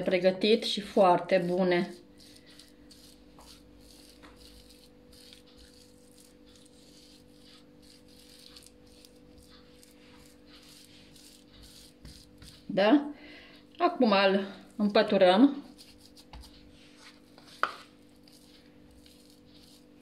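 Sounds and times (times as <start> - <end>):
hands rubbing and patting dough: 0.0 - 12.9, 14.5 - 20.0.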